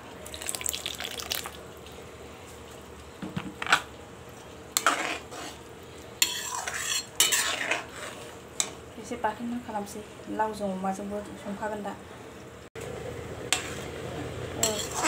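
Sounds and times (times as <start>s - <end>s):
faint simmering: 0.0s - 15.0s
spoon scraping metal wok: 4.8s - 8.8s, 13.5s - 14.0s, 14.6s - 15.0s.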